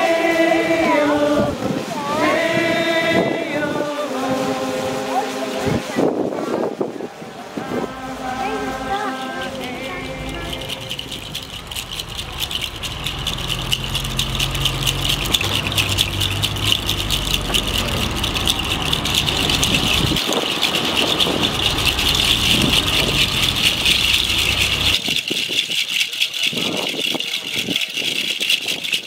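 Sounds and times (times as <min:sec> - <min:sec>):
low steady hum: 0:07.0 - 0:25.0
hand rattles shaken: 0:08.8 - 0:29.0.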